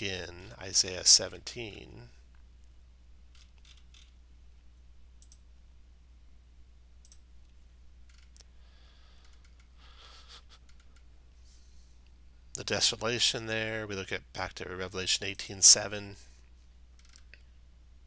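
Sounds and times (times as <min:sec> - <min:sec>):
low steady hum: 0:00.0 - 0:18.0
computer mouse clicks: 0:07.0 - 0:08.5.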